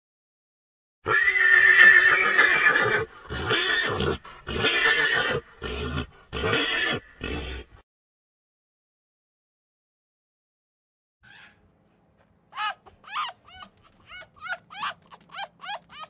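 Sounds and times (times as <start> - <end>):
animal calling: 11.2 - 11.7, 12.5 - 16.0.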